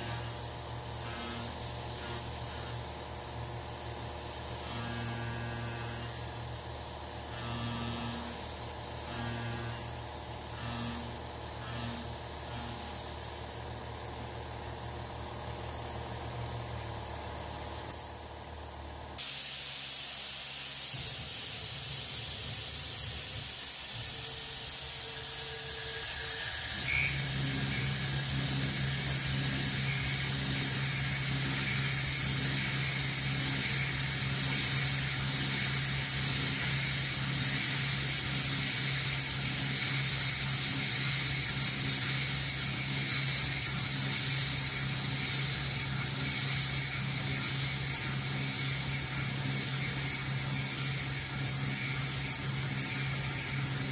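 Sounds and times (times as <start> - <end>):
steady low hum: 0.0 - 19.2, 20.7 - 53.9
coolant nozzles hissing: 0.0 - 53.9
milling machine cutting metal: 24.2 - 53.9.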